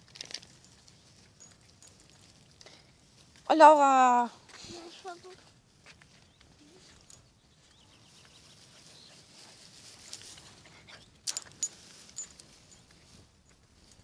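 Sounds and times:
footsteps through long grass: 0:07.8 - 0:10.8.

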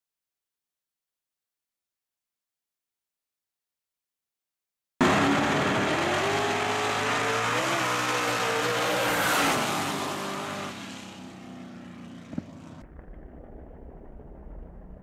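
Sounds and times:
drag racing engines at full throttle: 0:05.0 - 0:12.8.

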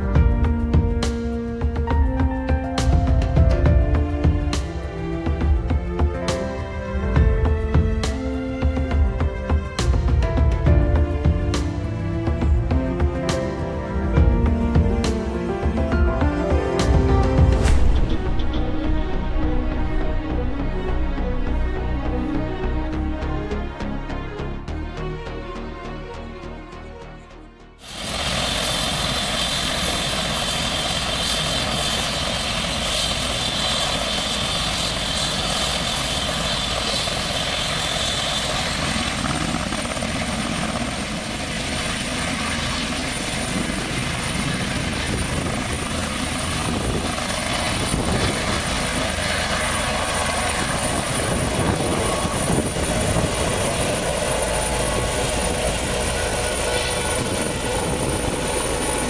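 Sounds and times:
helicopter rotor and turbine whine: 0:00.0 - 0:59.0.

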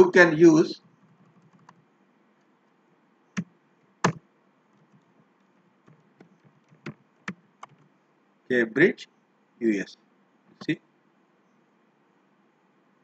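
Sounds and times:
computer keyboard keystrokes: 0:01.0 - 0:01.8, 0:05.9 - 0:07.9.

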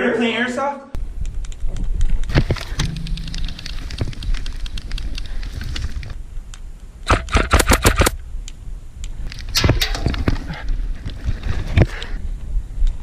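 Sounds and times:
low camera rumble: 0:01.0 - 0:06.5
airsoft gun shots: 0:07.1 - 0:08.2.

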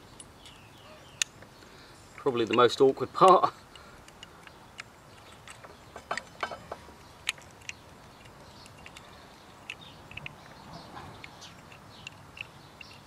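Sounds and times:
birds chirping faintly: 0:00.0 - 0:13.0
sharp clicks of brake pin: 0:02.2 - 0:10.6, 0:11.2 - 0:13.0.

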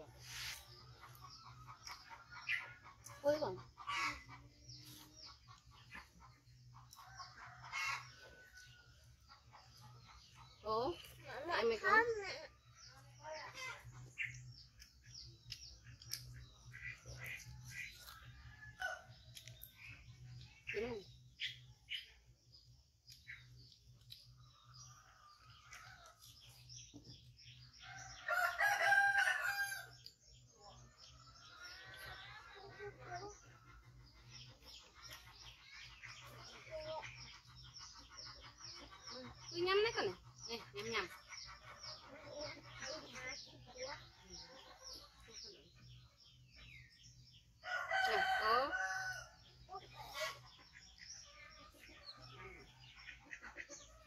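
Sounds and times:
small birds chirping: 0:00.0 - 0:54.0
rooster crowing: 0:28.2 - 0:29.9.

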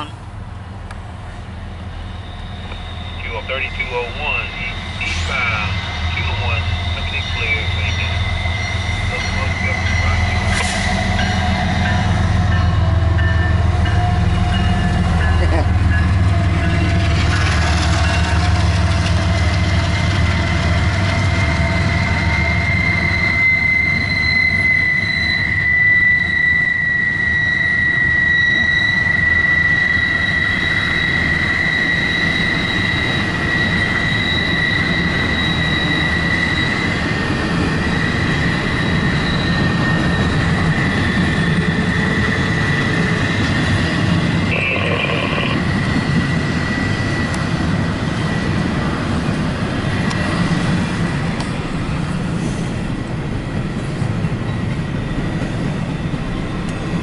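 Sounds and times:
freight train rumbling and clattering: 0:00.0 - 0:24.4, 0:29.3 - 0:57.0
high-pitched wheel squeal: 0:02.0 - 0:03.6, 0:04.6 - 0:12.8, 0:21.6 - 0:46.9.

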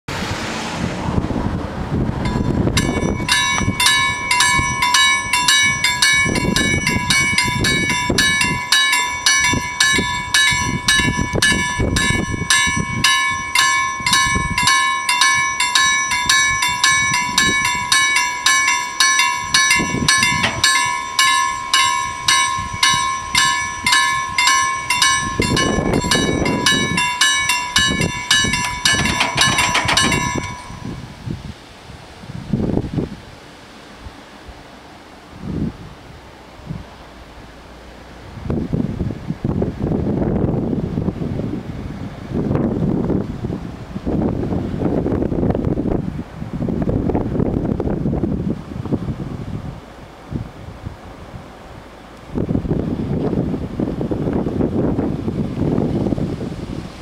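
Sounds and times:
level crossing warning bells: 0:02.2 - 0:31.1.

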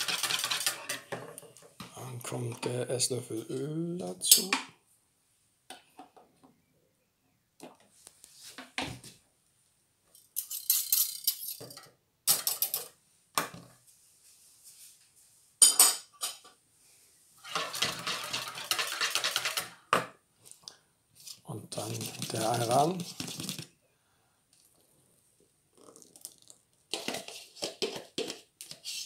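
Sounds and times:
fast continuous whisking: 0:00.0 - 0:00.9, 0:17.5 - 0:19.8, 0:21.8 - 0:23.6
whisk clinking against bowl: 0:17.5 - 0:19.7.

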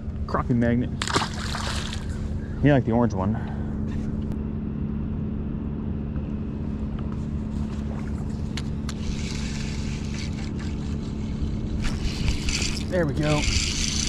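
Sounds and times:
boat motor droning: 0:00.0 - 0:14.0
fishing reel hissing: 0:08.9 - 0:14.0.

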